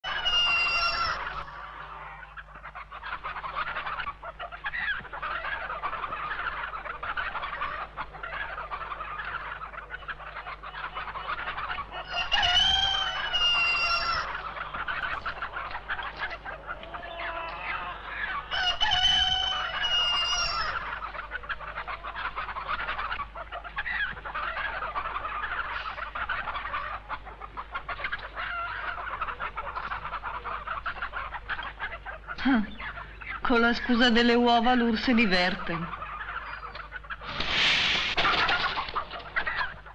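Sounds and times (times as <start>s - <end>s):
rooster crowing: 0.0s - 2.2s, 12.1s - 14.6s, 16.8s - 21.0s
chickens clucking: 0.0s - 39.9s.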